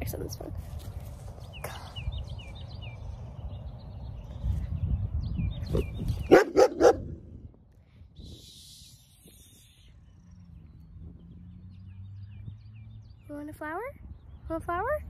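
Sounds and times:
low wind rumble on microphone: 0.0 - 15.0
dog barking: 6.3 - 7.1.

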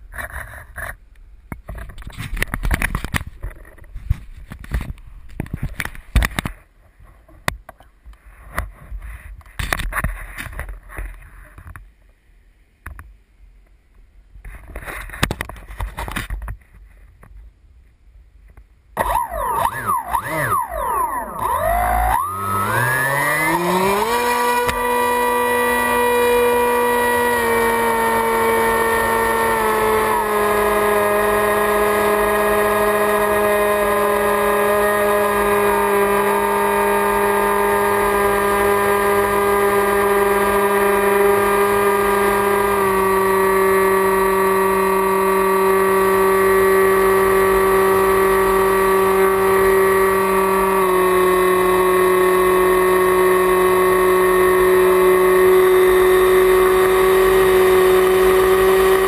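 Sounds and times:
electric motor and propeller whining: 19.0 - 59.0.

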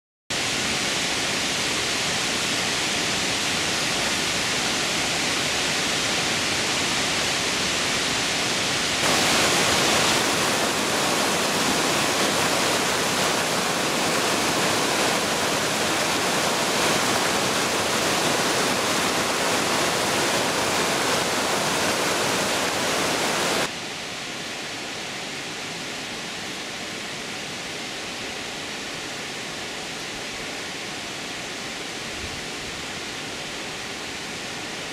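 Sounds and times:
stream rushing over boulders: 0.3 - 34.9.

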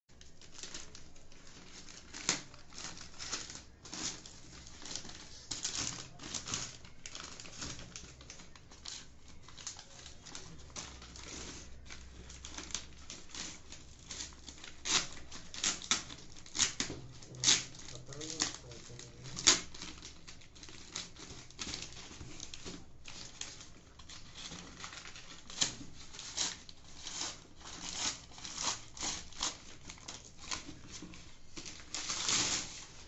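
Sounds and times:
paper bag tearing: 0.3 - 33.0.

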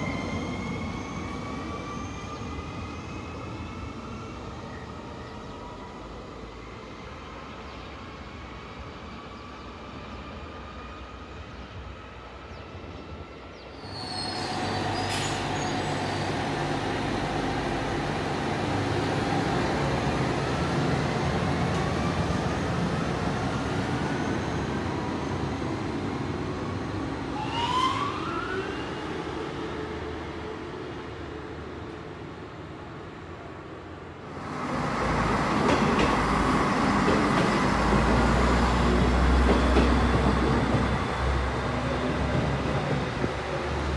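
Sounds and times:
approaching train: 0.0 - 43.9.

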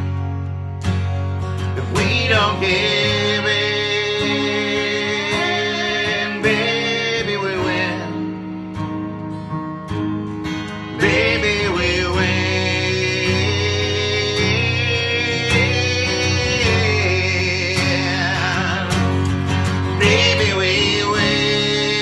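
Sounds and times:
strummed guitar: 0.0 - 22.0
woman and man singing: 1.8 - 8.2, 11.0 - 19.2, 19.9 - 22.0.

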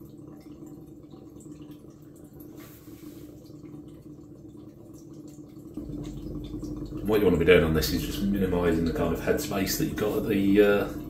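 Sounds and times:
liquid trickling into a jar: 0.0 - 11.0
steady low hum: 5.6 - 11.0.

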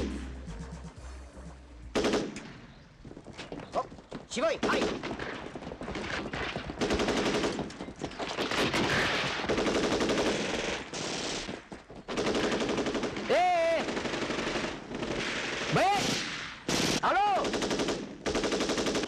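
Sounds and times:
automatic gunfire: 1.9 - 2.5, 4.6 - 19.0
man shouting: 13.3 - 13.9, 15.7 - 16.1, 17.0 - 17.5.

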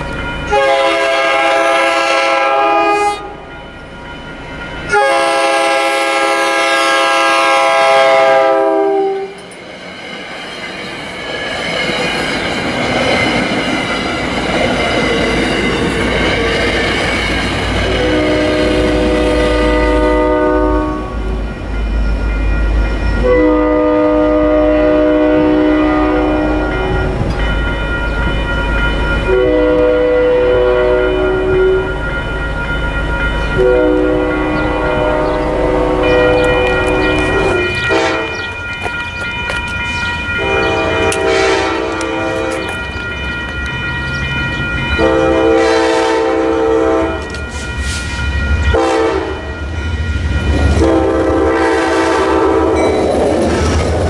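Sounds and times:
train rumble and rail clatter: 0.0 - 54.0
locomotive air horn blasts: 0.5 - 3.4, 4.9 - 9.4, 17.9 - 21.4, 23.2 - 26.8, 29.3 - 31.9, 33.6 - 38.5, 40.4 - 42.7, 45.0 - 47.3, 48.7 - 49.5, 50.8 - 52.9.

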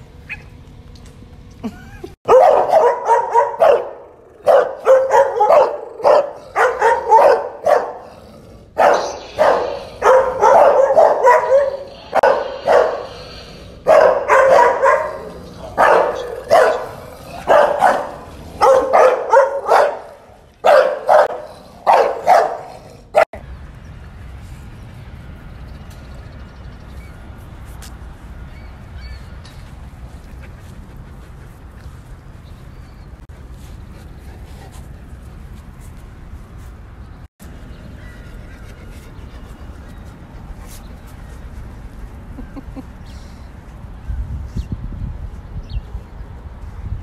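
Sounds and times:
dog barking: 2.3 - 8.1, 8.8 - 13.2, 13.8 - 23.3.

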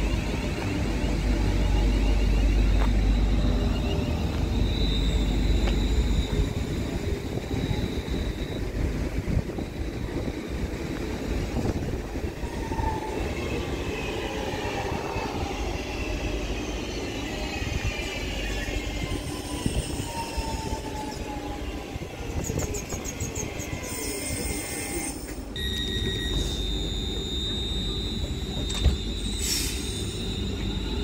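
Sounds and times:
train rumble: 0.0 - 31.0
thin high whine: 0.8 - 8.8, 24.0 - 31.0.

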